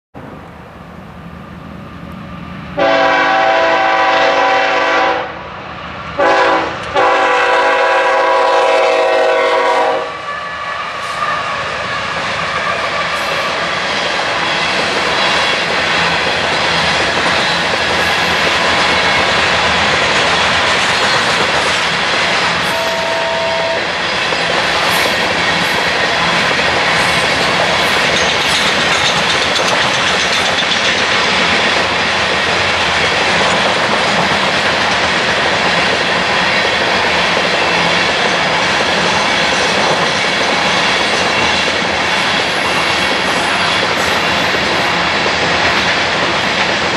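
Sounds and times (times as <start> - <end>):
train wheels rumbling on rails: 0.2 - 46.9
two-note tone: 22.7 - 23.9.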